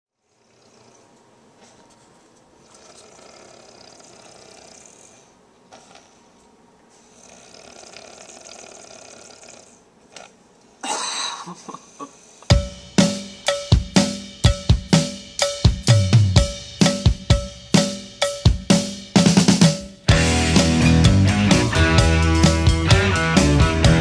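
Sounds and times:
person snoring: 0:00.2 - 0:01.1, 0:02.6 - 0:06.4, 0:07.0 - 0:12.5.

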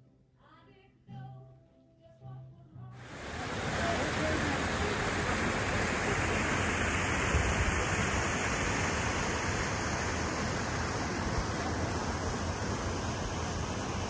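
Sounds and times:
sea: 0:03.0 - 0:14.0
wind: 0:03.0 - 0:14.0.

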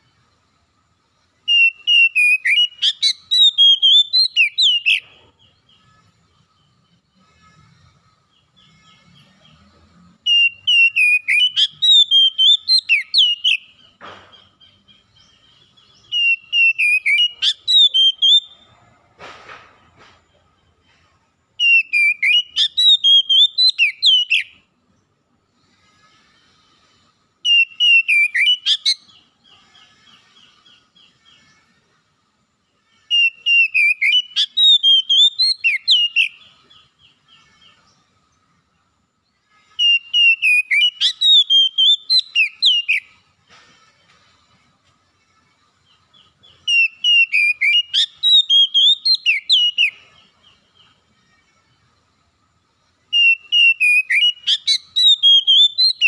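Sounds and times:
faint steady trill: 0:00.0 - 0:19.1
bird singing whistled phrases: 0:01.5 - 0:05.0, 0:10.3 - 0:13.8, 0:16.0 - 0:18.6, 0:21.6 - 0:24.6, 0:27.4 - 0:29.2, 0:33.1 - 0:36.8, 0:39.8 - 0:43.2, 0:46.2 - 0:50.1, 0:53.1 - 0:56.0.

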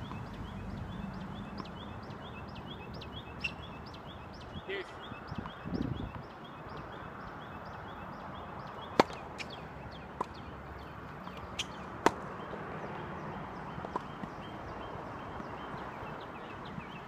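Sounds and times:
tennis ball pops: 0:09.0 - 0:09.2.

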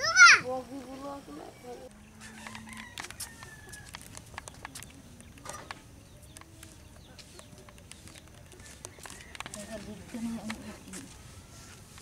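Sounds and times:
faint bird calls: 0:01.5 - 0:09.9.

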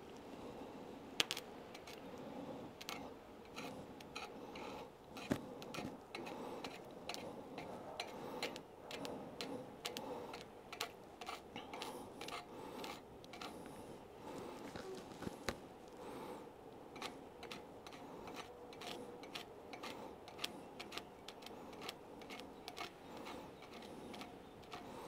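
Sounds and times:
welding rod scraping on steel plate: 0:02.8 - 0:13.9, 0:17.0 - 0:25.0.

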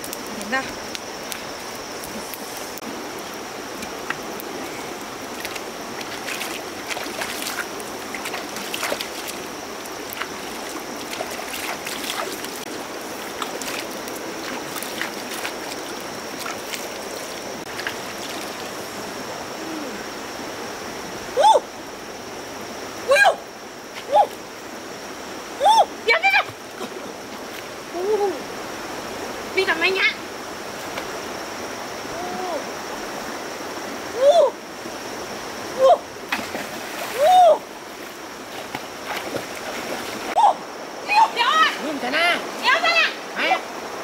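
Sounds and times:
stream trickling over rocks: 0:00.0 - 0:19.4, 0:34.7 - 0:41.0
person exclaiming loudly: 0:37.2 - 0:37.6.

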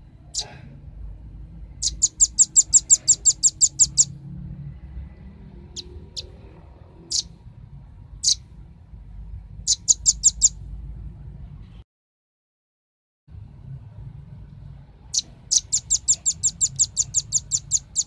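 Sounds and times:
bird calling with high chips: 0:00.3 - 0:00.5, 0:01.8 - 0:04.2, 0:07.1 - 0:07.3, 0:08.2 - 0:08.4, 0:09.6 - 0:10.6, 0:15.1 - 0:18.0.

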